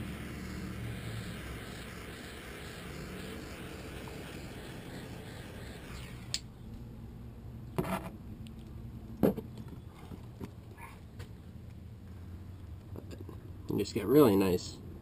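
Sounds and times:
heat torch hissing: 0.0 - 6.4.

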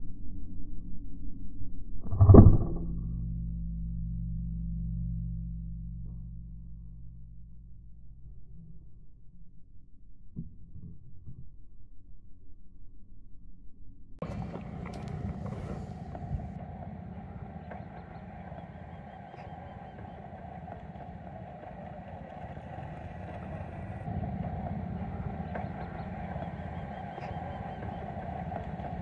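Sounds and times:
engine rumble: 2.2 - 10.0, 14.2 - 29.0.

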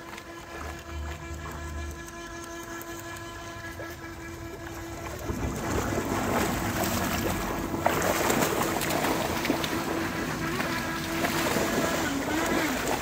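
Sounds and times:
steady whine: 0.0 - 13.0
water splashing: 0.0 - 13.0
dog running through river: 5.0 - 13.0.

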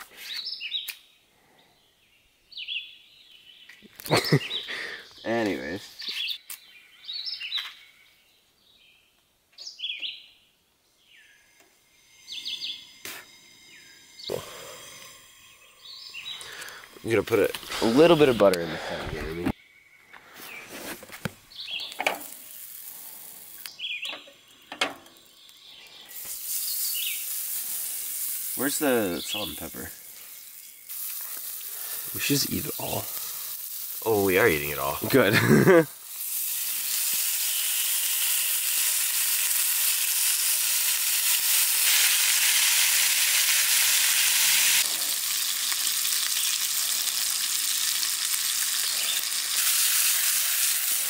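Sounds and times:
bird chirping: 0.1 - 33.4
songbird calling: 0.2 - 20.8, 21.5 - 22.0, 23.6 - 33.0
butter sizzling in a frying pan: 21.5 - 51.0.

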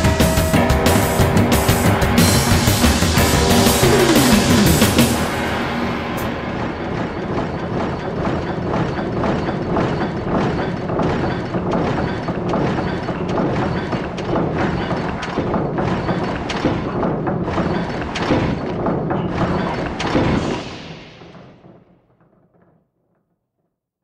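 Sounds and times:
mechanical gears clanking and clicking: 6.2 - 21.8.

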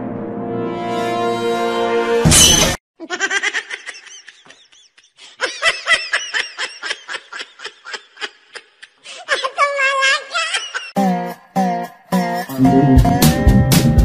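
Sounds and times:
high-pitched laughter: 3.0 - 11.0
background music: 11.0 - 14.0.

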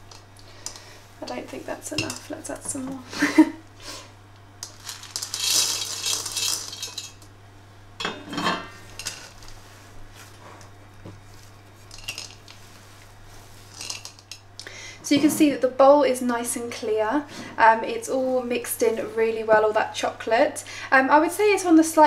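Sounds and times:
chocolate chips pattering into bowl: 4.6 - 7.3, 11.8 - 12.6, 13.7 - 14.4.

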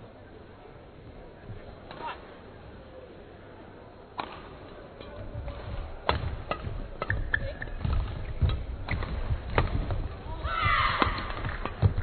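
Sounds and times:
racket hitting shuttlecock: 4.2 - 10.1.

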